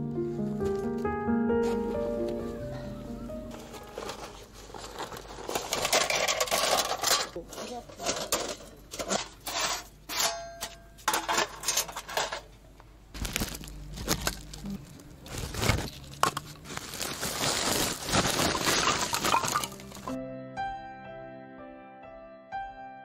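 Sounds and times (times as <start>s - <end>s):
rustling: 0.3s - 9.9s, 13.1s - 20.2s
clinks and knocks of handling: 5.1s - 12.5s.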